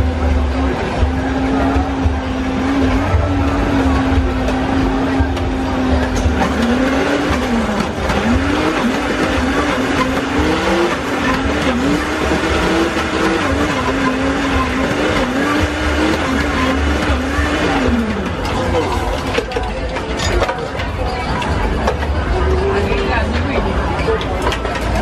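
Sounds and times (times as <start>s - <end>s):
blender motor running: 6.4s - 18.4s.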